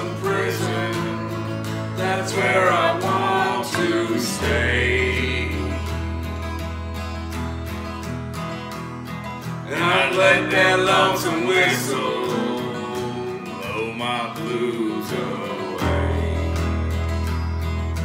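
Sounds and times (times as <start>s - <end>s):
person singing: 0.0s - 6.3s, 9.7s - 17.2s
acoustic bass guitar: 0.0s - 18.0s
acoustic guitars playing: 0.0s - 18.0s.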